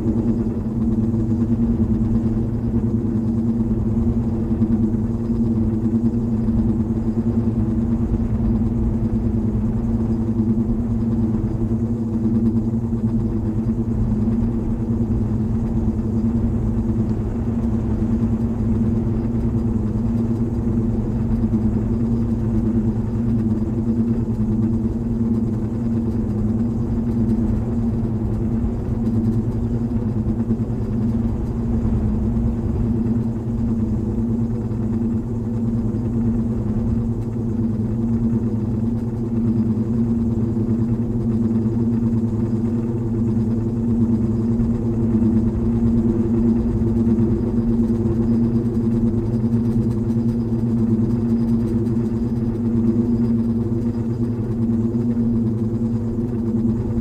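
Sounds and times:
low droning rumble: 0.0 - 37.5.

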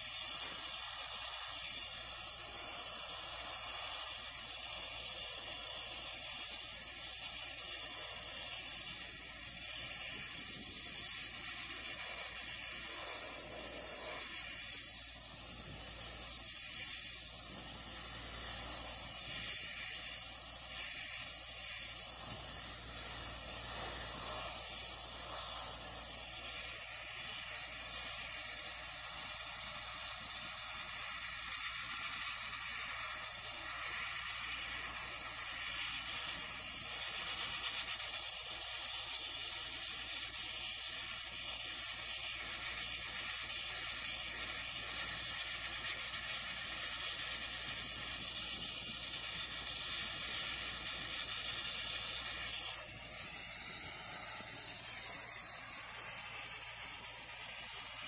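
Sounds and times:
blast nozzle hissing: 0.0 - 58.0.

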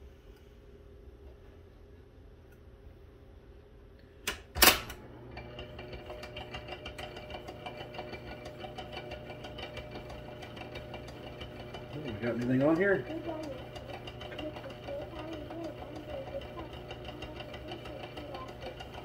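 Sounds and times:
wire recorder mechanism humming: 4.0 - 19.0.

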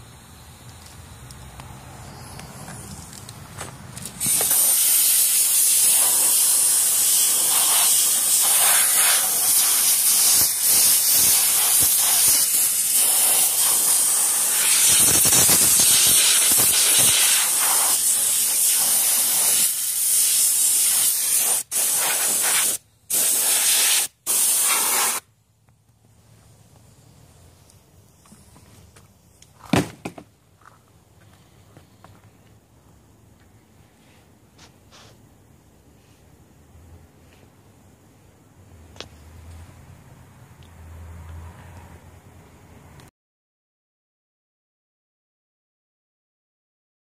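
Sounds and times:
pressurized spray hissing: 4.2 - 25.2.

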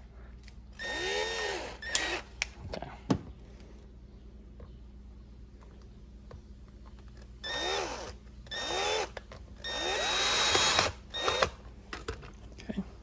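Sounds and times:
cordless drill driving screws: 0.8 - 2.3, 7.4 - 11.6.

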